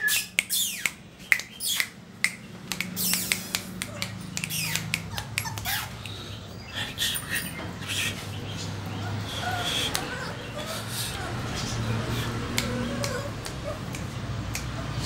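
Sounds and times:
puppies squeaking and whimpering: 0.0 - 15.0
sharp clicks: 0.4 - 6.2, 12.5 - 14.8.

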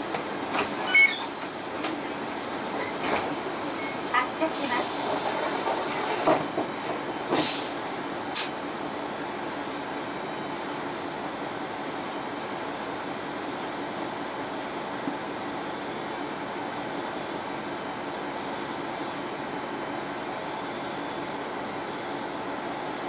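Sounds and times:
compressed air hiss: 4.5 - 6.2, 7.4 - 7.8.

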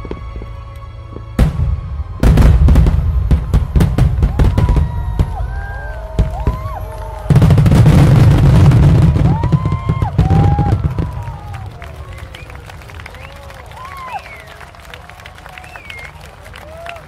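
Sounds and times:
fireworks booming and crackling: 1.1 - 12.7
gliding whoops: 4.3 - 7.6, 9.0 - 17.0.

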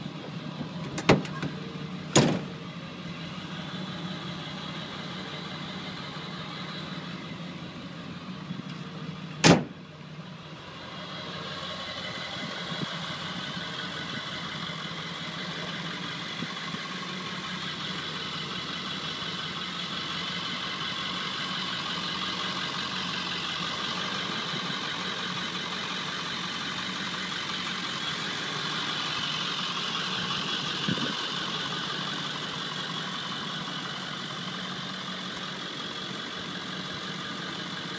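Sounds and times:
diesel engine idling: 0.0 - 37.9
sharp bang: 9.4 - 9.8.

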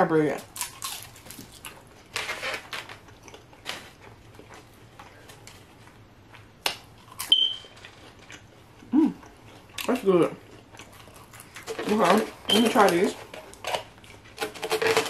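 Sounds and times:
crunchy bites and chewing: 0.5 - 2.2, 6.6 - 8.6, 9.2 - 12.0
short high beep: 7.3 - 7.7.

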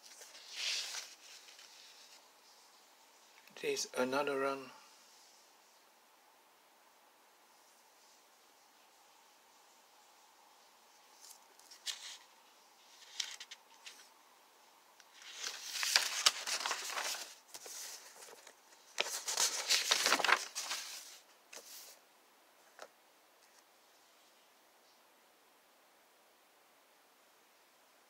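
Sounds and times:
paper rustling and crinkling: 0.0 - 2.7, 11.2 - 14.1, 15.1 - 22.0.

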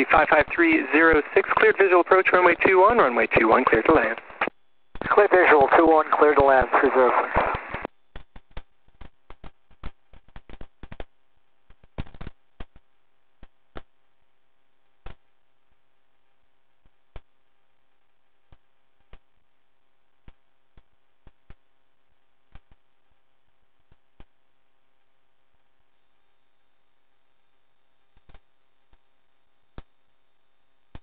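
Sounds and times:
faint steady hum: 0.0 - 9.0, 11.0 - 31.0
radio clicks and crackles: 0.0 - 11.1, 11.7 - 13.9, 28.1 - 29.1.

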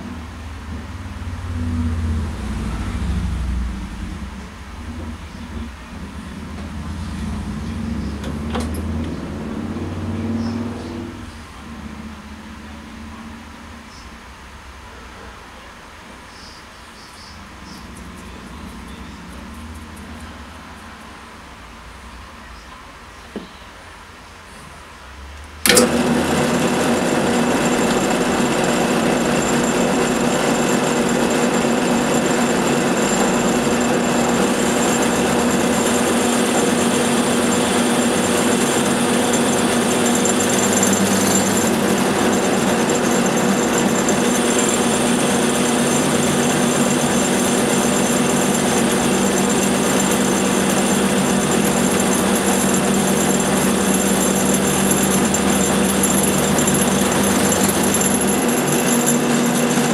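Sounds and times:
drill press motor running: 6.4 - 11.2, 25.6 - 59.9
drill press switch click: 25.6 - 26.1.

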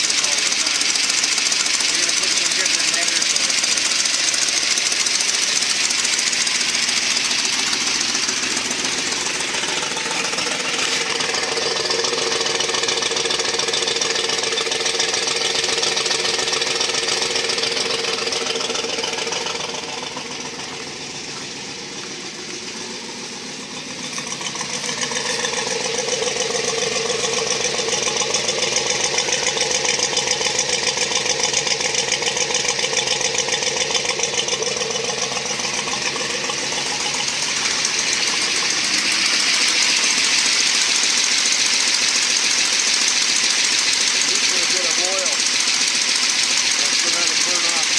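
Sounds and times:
engine idling exhaust pulsing: 0.0 - 47.9.

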